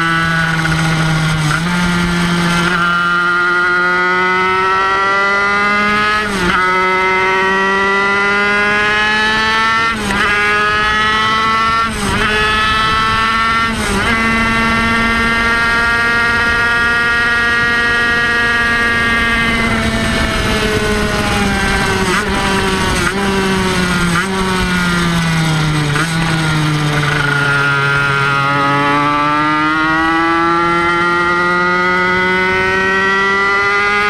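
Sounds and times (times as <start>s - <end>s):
two-stroke racing engine revving: 0.0s - 34.0s.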